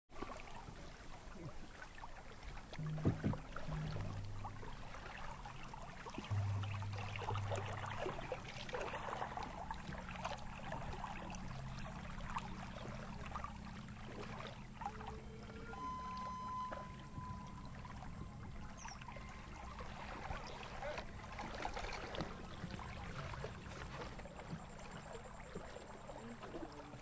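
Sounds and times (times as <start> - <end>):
small splashes: 0.1 - 27.0
water lapping around canoe: 0.1 - 27.0
low held tones: 2.8 - 23.8.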